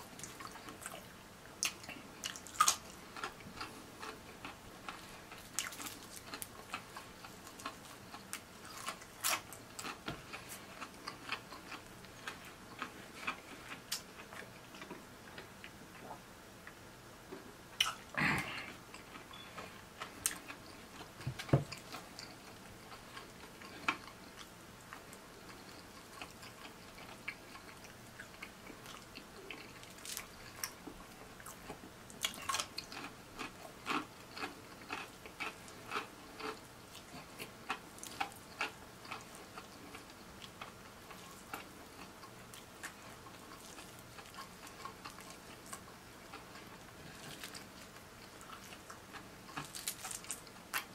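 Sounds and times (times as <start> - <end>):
crispy chicken crunching: 1.6 - 15.0, 20.2 - 50.9
wet chewing: 17.8 - 50.9.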